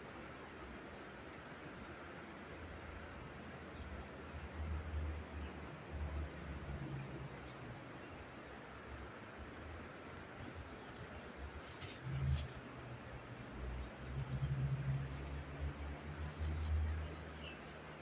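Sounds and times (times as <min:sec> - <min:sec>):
small birds chirping: 0:16.4 - 0:18.0.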